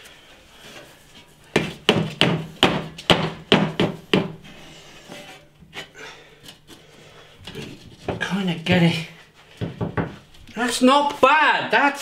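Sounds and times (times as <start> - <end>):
cast iron range knocking on brick: 1.6 - 4.4.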